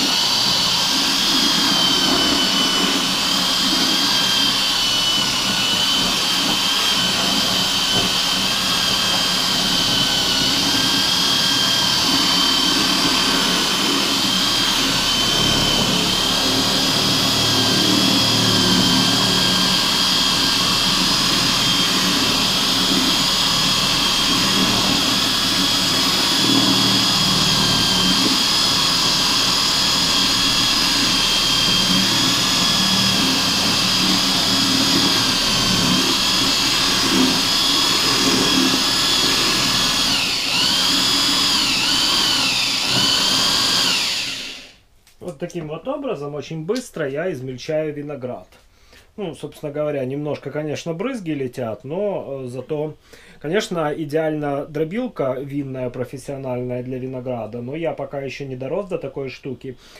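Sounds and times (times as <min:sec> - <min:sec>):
electric drill motor whine: 0:00.0 - 0:44.9
wet churning of grapes: 0:00.1 - 0:44.3.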